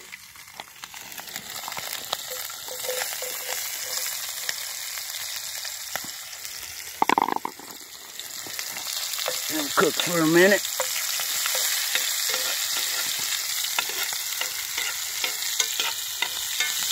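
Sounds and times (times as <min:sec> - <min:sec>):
onions sizzling in a skillet: 0:00.0 - 0:16.9.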